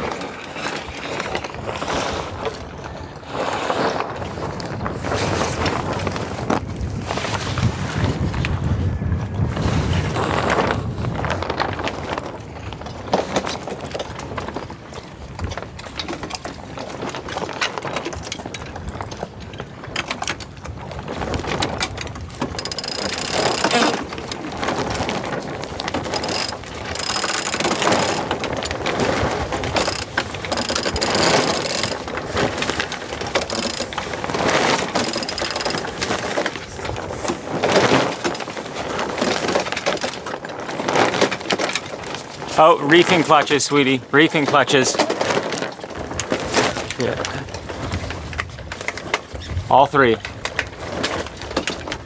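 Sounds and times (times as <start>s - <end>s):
winch ratchet clicking: 22.0s - 24.2s, 26.0s - 28.6s, 29.6s - 36.1s, 39.1s - 40.2s.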